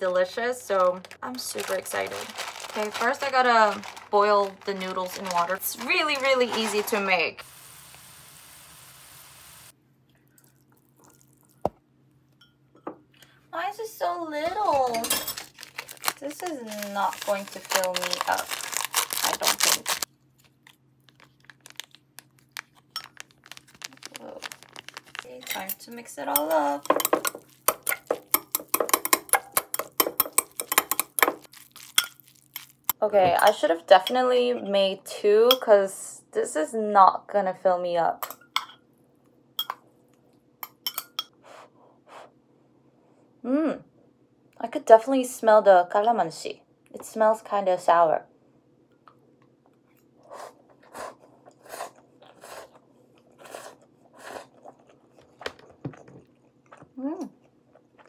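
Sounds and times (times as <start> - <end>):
wet chewing and slurping: 10.1 - 11.6, 49.9 - 58.0
fork clinking against glass bowl: 39.6 - 39.8, 40.6 - 41.3.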